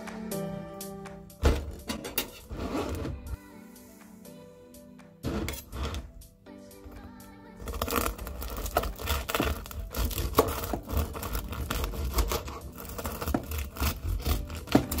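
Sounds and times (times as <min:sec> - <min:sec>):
bread knife sawing crusty loaf: 0:07.7 - 0:15.0.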